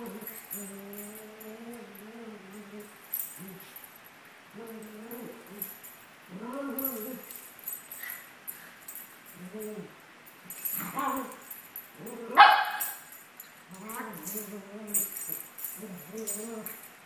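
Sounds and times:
dogs growling in play: 0:00.0 - 0:03.8, 0:04.5 - 0:07.4, 0:09.3 - 0:12.4, 0:13.7 - 0:16.9
dog barking sharply: 0:12.4 - 0:12.9.

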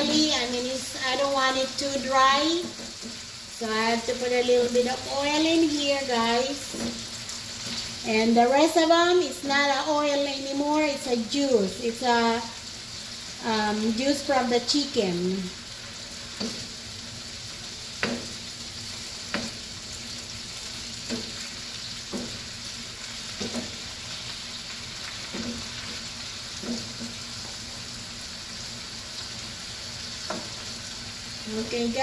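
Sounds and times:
chicken sizzling in a frying pan: 0:00.0 - 0:32.0
wooden spatula knocking on pan: 0:18.0 - 0:18.3, 0:22.1 - 0:22.4, 0:23.4 - 0:23.8, 0:26.6 - 0:27.2.

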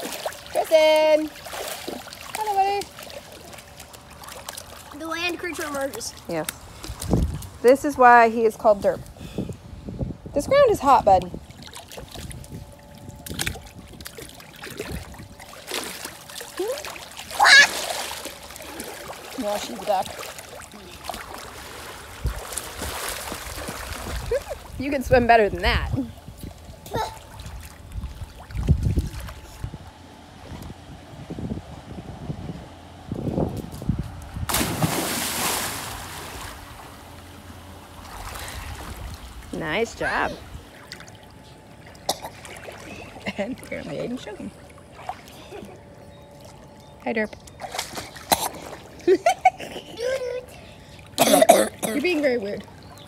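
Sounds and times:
pool water splashing: 0:00.0 - 0:08.7, 0:10.5 - 0:30.7, 0:34.5 - 0:46.8, 0:47.6 - 0:53.0
child squealing: 0:17.4 - 0:17.8
loud splash into pool: 0:34.5 - 0:36.9.

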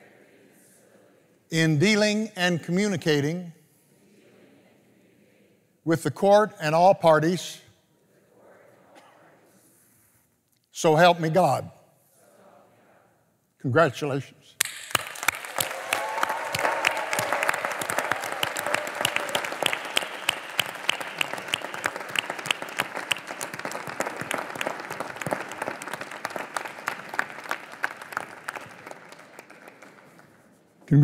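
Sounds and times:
audience applauding: 0:14.6 - 0:30.6.

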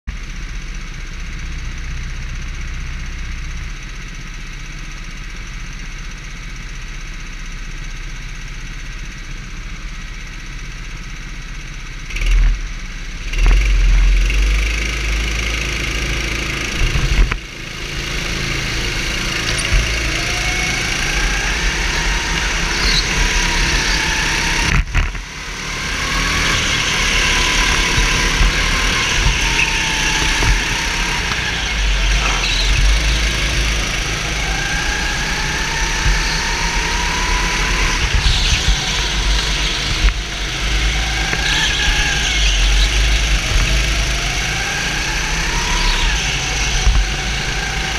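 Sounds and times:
go-kart engine revving: 0:12.0 - 0:47.9.

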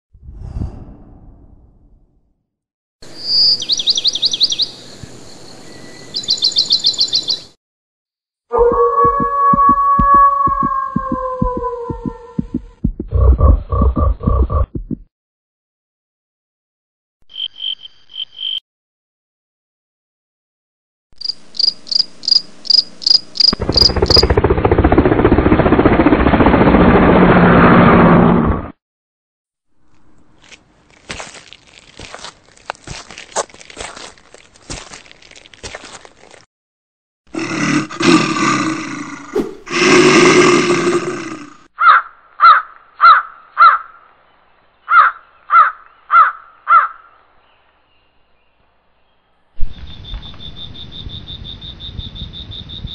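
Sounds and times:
cricket chirping: 0:17.3 - 0:18.6, 0:21.2 - 0:24.4, 0:49.6 - 0:52.9
crow cawing: 0:41.8 - 0:44.0, 0:44.9 - 0:47.2.

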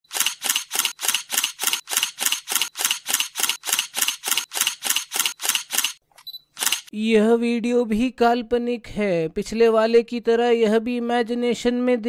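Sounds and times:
rapid sharp clicks: 0:00.1 - 0:06.0, 0:06.6 - 0:06.9.

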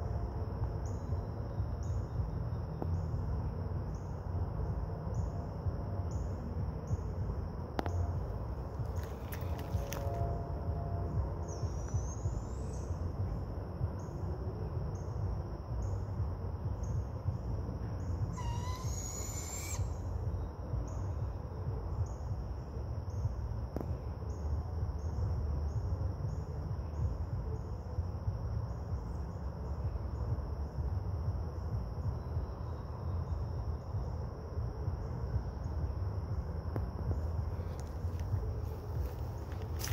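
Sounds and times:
low rumble: 0:00.0 - 0:39.9
pulsing high insect drone: 0:00.0 - 0:39.9
owl calling: 0:18.3 - 0:20.1.

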